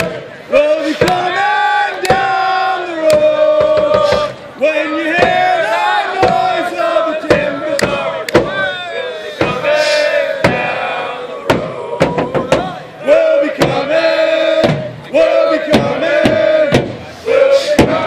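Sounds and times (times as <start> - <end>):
crowd chanting in unison: 0.0 - 18.0
drum beats: 0.9 - 1.4, 2.0 - 2.4, 3.0 - 4.4, 5.1 - 5.6, 6.2 - 6.6, 7.2 - 8.7, 9.4 - 9.8, 10.4 - 12.8, 13.5 - 15.0, 15.6 - 17.0, 17.8 - 18.0.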